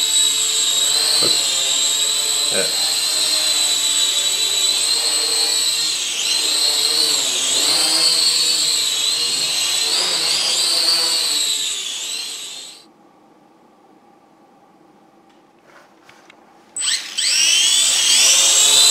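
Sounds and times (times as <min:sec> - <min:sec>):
toy drone motors whining: 0:00.0 - 0:12.9, 0:16.8 - 0:18.9.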